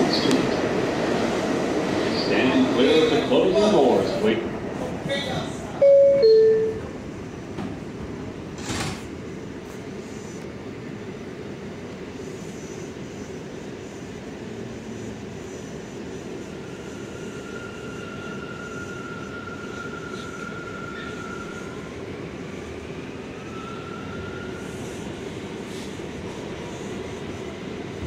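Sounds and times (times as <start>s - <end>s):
subway car running noise: 0.0s - 28.0s
subway door knock and hiss: 7.5s - 9.9s.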